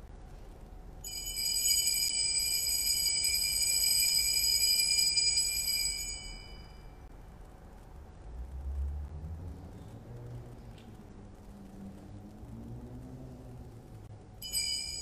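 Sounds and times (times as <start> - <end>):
altar bells ringing: 1.0 - 7.0, 14.4 - 15.0.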